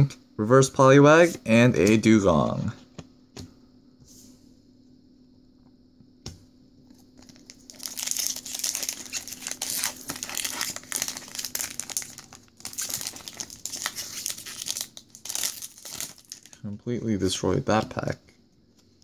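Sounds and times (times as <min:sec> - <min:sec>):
foil wrapper tearing and crinkling: 0:07.2 - 0:16.6.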